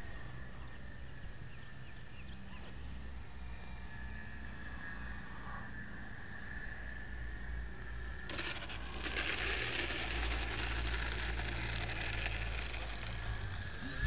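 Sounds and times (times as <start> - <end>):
electric motor whine: 8.3 - 14.0.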